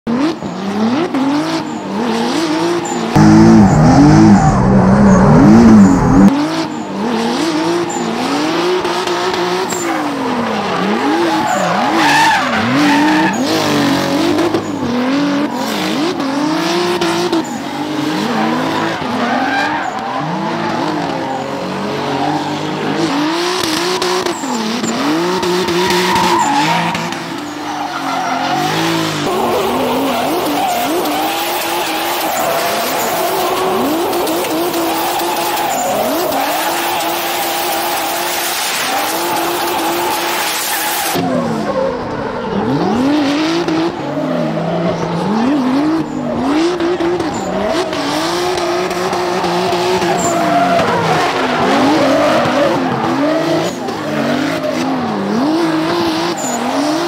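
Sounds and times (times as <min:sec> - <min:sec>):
car engine revving: 0:00.1 - 0:57.0
tyres squealing and skidding: 0:00.2 - 0:57.0
loud low rumble: 0:03.2 - 0:06.3.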